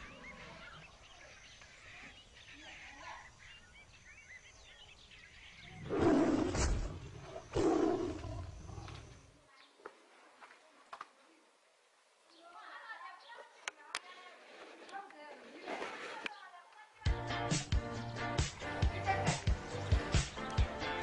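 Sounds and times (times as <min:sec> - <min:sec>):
faint chirping: 0:00.0 - 0:09.8.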